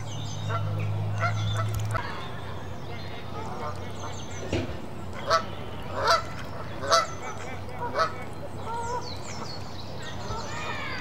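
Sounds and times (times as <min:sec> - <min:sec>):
small birds chirping: 0:00.0 - 0:11.0
geese honking: 0:02.9 - 0:11.0.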